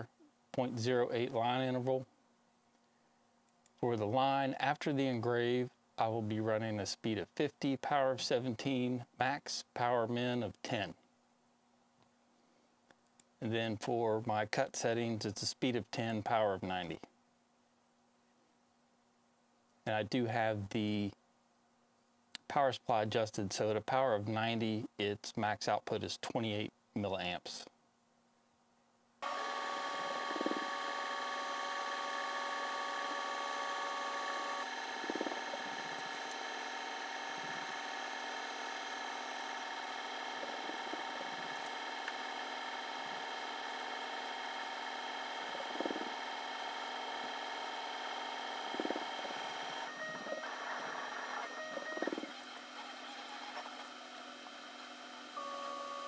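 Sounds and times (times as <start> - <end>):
laser engraver whirring: 29.2 - 56.0.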